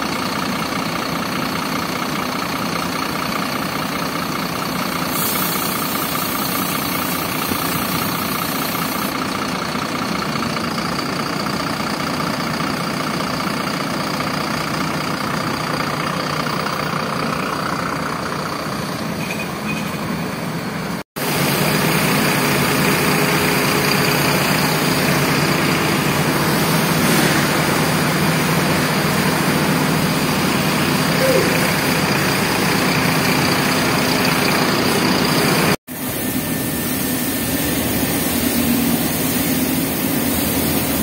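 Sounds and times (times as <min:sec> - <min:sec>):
bus diesel engine idling: 0:00.0 - 0:41.0
hiss: 0:04.8 - 0:09.2, 0:35.9 - 0:41.0.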